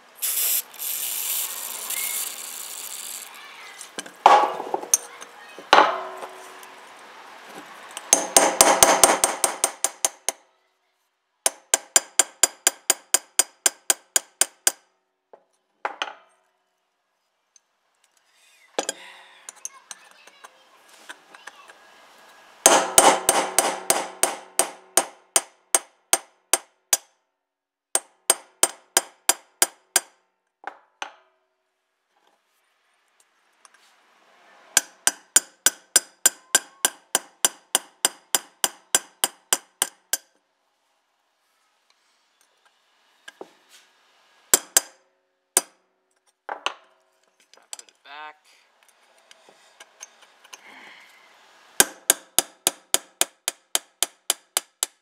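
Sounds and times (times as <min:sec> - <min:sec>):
hammer striking metal: 0:04.3 - 0:05.1, 0:05.8 - 0:06.7, 0:08.1 - 0:10.4, 0:22.6 - 0:27.1, 0:34.8 - 0:40.2.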